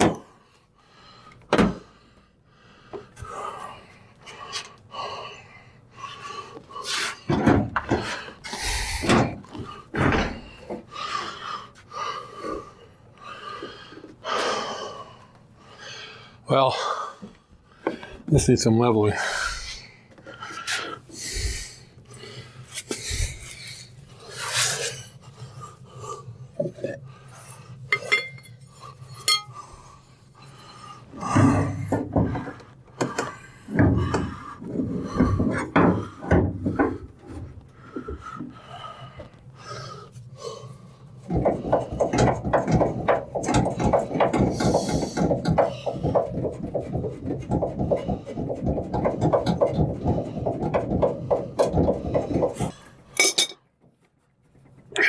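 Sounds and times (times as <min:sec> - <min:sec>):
metal tools clinking and knocking: 0:27.9 - 0:28.6, 0:29.2 - 0:29.5, 0:53.2 - 0:53.7.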